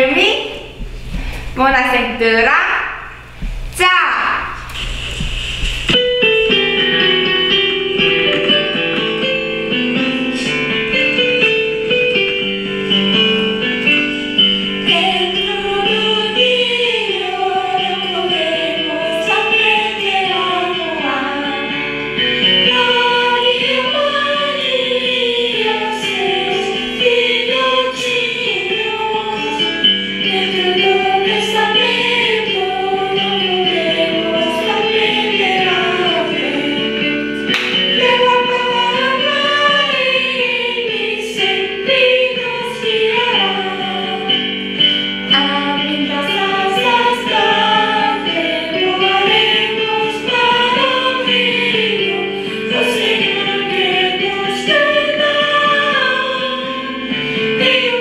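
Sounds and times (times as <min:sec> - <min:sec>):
musical accompaniment: 0:04.6 - 0:58.0
group singing a religious song: 0:14.1 - 0:58.0.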